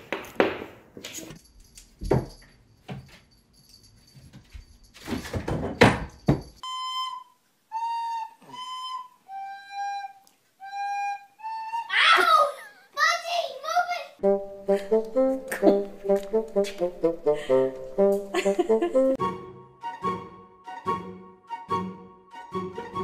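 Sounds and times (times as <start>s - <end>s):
knocks and rustles: 4.1s - 6.6s.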